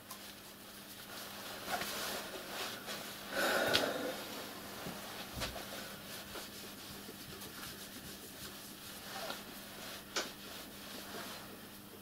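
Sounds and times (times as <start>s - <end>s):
cloth rubbing on metal: 0.2s - 3.3s, 4.3s - 11.9s.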